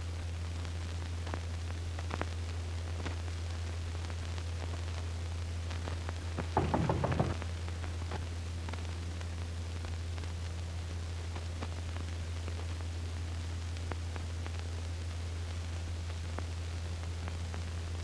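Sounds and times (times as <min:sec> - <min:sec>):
knuckles knocking on door: 0:06.4 - 0:07.5.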